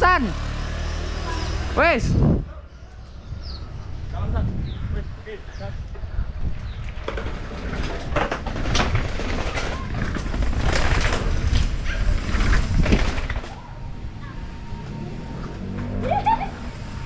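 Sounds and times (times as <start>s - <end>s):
wind buffeting microphone: 1.9s - 15.8s
bike frame and chain rattling: 6.6s - 14.4s.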